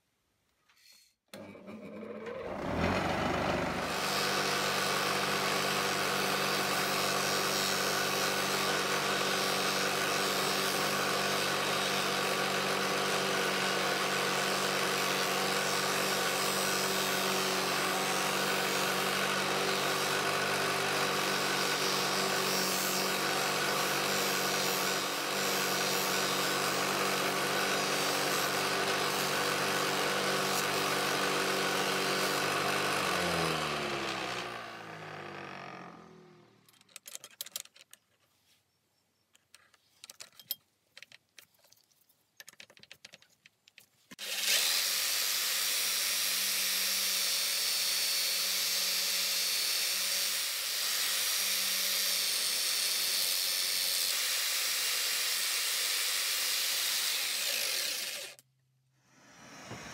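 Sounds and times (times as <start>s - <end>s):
bench polisher humming: 1.7s - 12.0s, 13.4s - 36.5s, 59.2s - 59.9s
metal buffing hiss: 59.0s - 59.9s.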